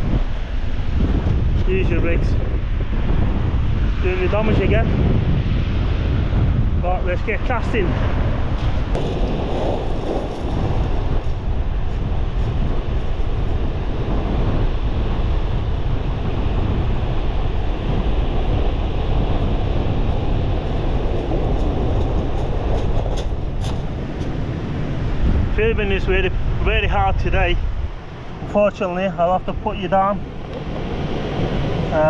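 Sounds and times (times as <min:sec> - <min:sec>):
strong wind buffeting microphone: 0:00.0 - 0:32.0
surf breaking on shingle: 0:09.0 - 0:11.4.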